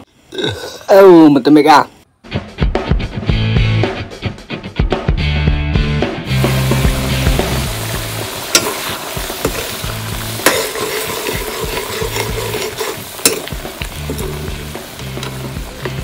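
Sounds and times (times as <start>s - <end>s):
curry bubbling and sizzling: 6.3s - 16.0s
metal ladle stirring: 8.2s - 16.0s
ladle knocking against pan: 10.4s - 14.4s.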